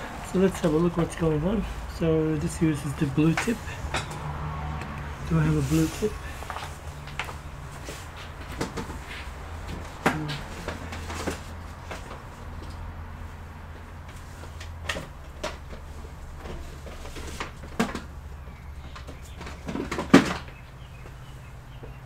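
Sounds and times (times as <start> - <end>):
knocks and clatter of rummaging: 5.8 - 12.7, 14.0 - 20.8.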